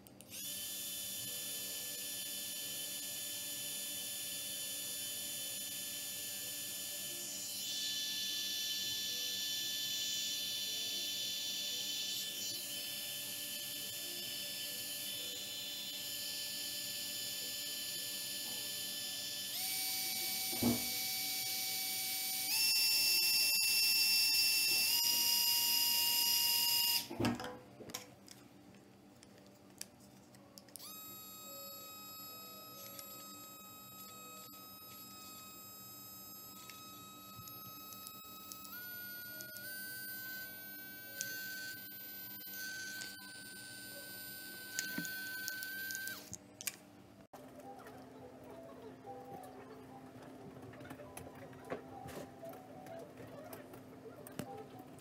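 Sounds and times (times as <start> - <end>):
small fan motor whine: 0.2 - 27.2, 30.7 - 46.4
small fan whining: 29.3 - 46.5.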